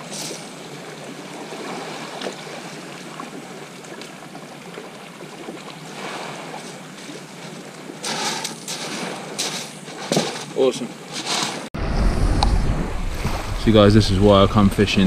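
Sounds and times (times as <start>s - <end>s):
waves washing onto shingle: 5.3s - 11.7s.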